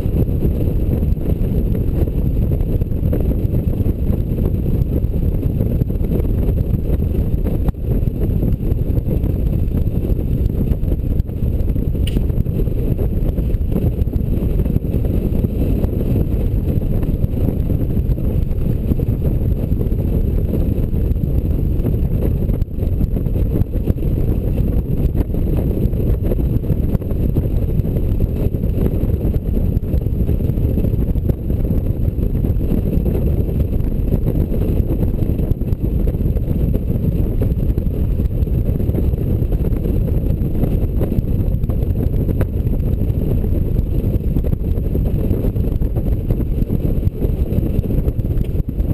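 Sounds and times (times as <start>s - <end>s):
motorcycle road rumble: 0.0s - 48.9s
wind rush: 0.0s - 48.9s.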